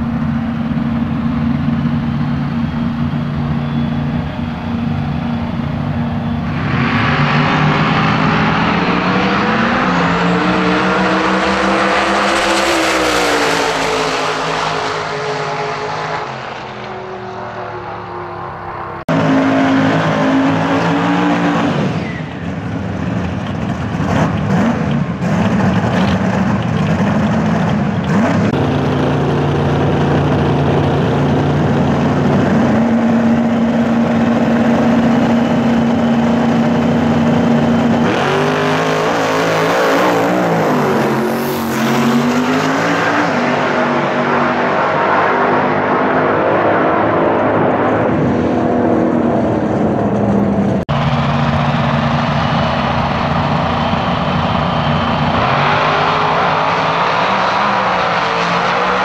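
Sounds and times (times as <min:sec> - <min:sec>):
drag car engines idling: 0:00.0 - 0:06.6, 0:49.4 - 0:55.6
engine throttle blips: 0:00.0 - 0:59.0
race car launching at full throttle: 0:18.6 - 0:59.0.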